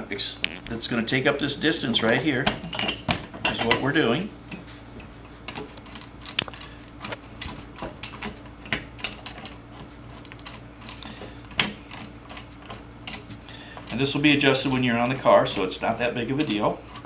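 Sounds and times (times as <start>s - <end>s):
small metallic clicks and clinks: 5.5s - 8.3s.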